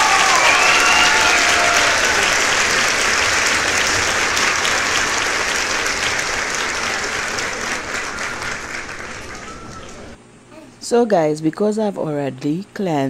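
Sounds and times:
crowd applauding: 0.0 - 10.2.

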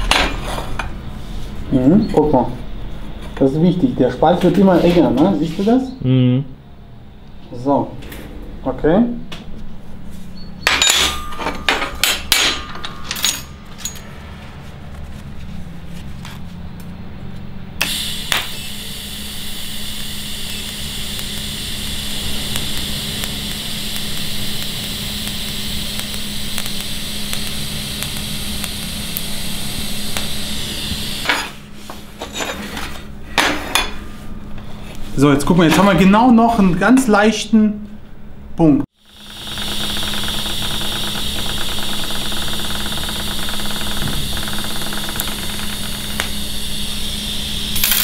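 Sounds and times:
metallic knocks and clinks: 10.6 - 14.1
welding arc hissing: 17.8 - 32.2, 39.0 - 48.0.

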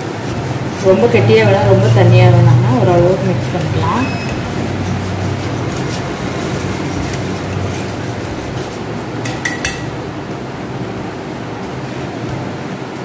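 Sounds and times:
whisk scraping a steel bowl: 0.0 - 9.9
kitchen hum: 0.0 - 13.0
whisk clinking against bowl: 2.8 - 10.0.

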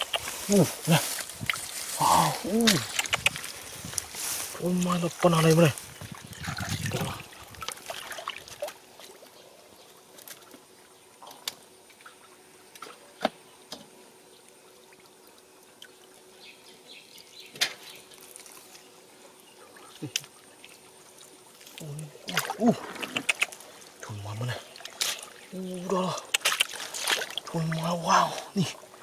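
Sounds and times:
water splashing and dripping: 0.0 - 9.3, 20.0 - 28.8.

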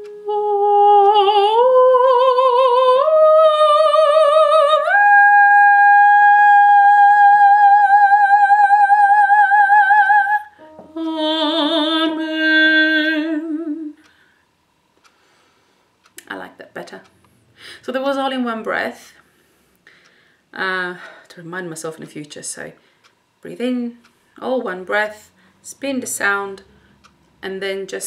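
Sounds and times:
soprano singing with vibrato: 0.0 - 14.0.

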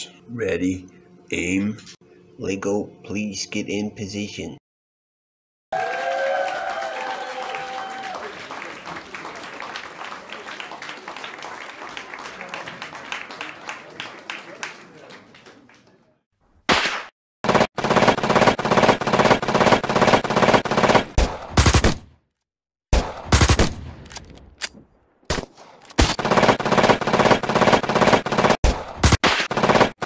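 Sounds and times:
machine-gun fire: 16.7 - 22.1, 22.9 - 24.0, 25.3 - 30.0.

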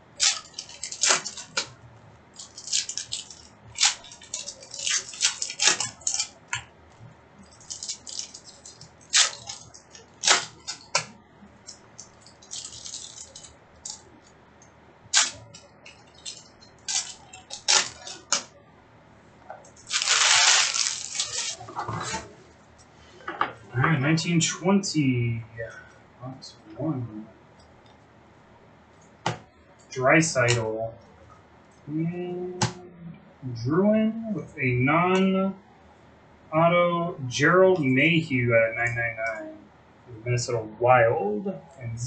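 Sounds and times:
foil wrappers and cards rustling: 0.1 - 1.7, 2.3 - 6.5, 7.4 - 14.2, 15.2 - 18.5, 19.7 - 22.2.

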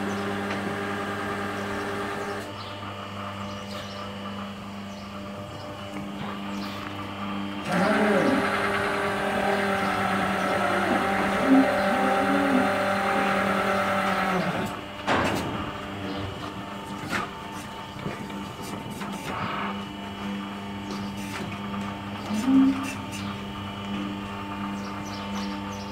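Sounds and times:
hydraulic power unit humming: 0.0 - 25.9.

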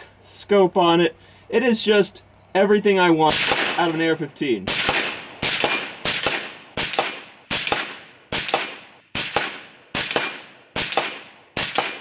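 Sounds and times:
rifle shots with ringing echo: 3.3 - 12.0.

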